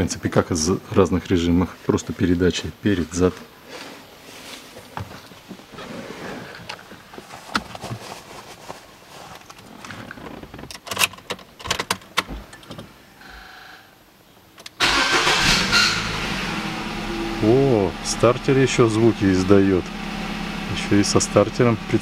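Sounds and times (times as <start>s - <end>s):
clicks and knocks in car: 9.4s - 12.9s
starter motor cranking: 14.8s - 16.4s
car engine running loudly: 15.4s - 22.0s.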